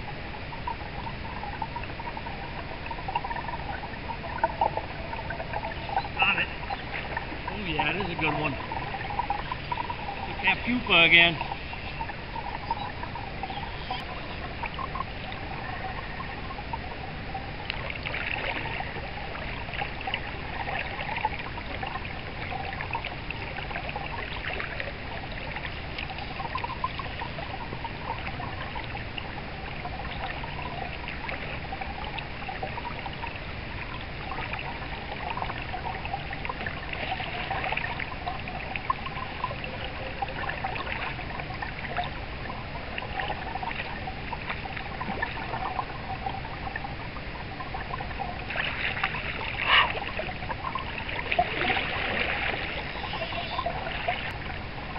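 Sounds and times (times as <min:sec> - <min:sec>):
small water splashes: 0:00.0 - 0:54.9
stream water trickling: 0:00.0 - 0:54.9.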